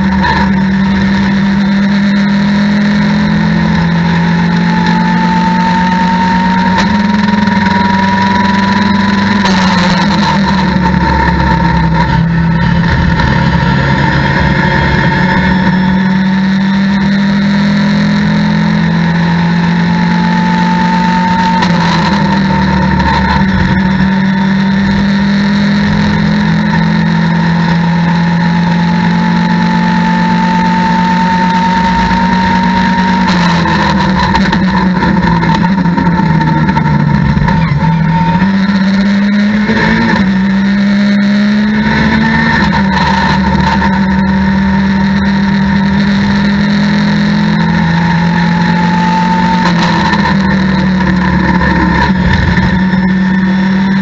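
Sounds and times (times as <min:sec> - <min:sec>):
race car engine revving: 0:00.0 - 0:54.0
faint whine: 0:07.0 - 0:16.4.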